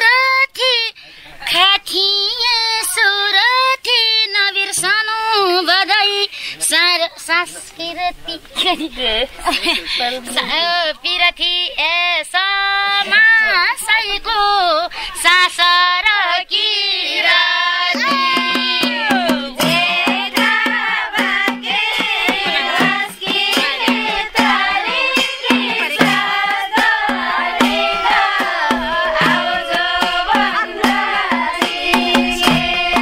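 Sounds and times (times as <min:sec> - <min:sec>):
person singing folk melody: 0:00.0 - 0:33.0
hand drum beat: 0:17.9 - 0:33.0.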